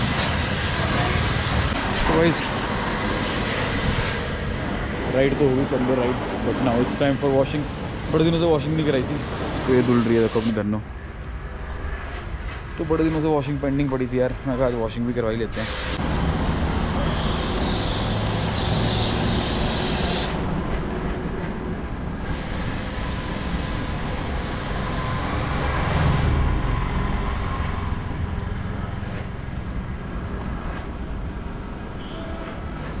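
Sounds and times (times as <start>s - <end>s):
pressure washer spraying: 0.0s - 7.8s, 15.6s - 16.0s, 16.8s - 20.4s.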